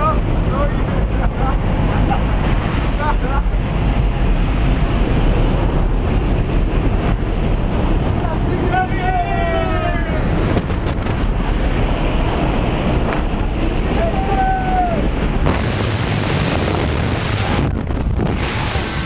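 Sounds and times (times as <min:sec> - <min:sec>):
aircraft engine: 0:00.0 - 0:19.0
wind blasting microphone: 0:00.0 - 0:19.0
person yelling: 0:08.6 - 0:10.3, 0:13.9 - 0:15.1.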